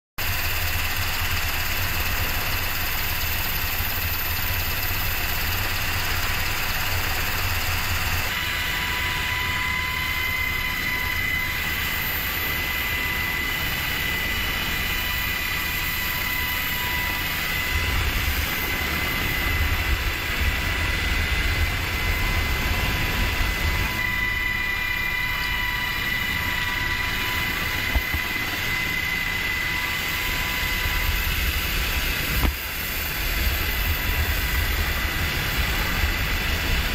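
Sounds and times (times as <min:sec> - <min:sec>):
helicopter rotor and engine: 0:00.2 - 0:36.9
steady high whine: 0:00.2 - 0:36.9.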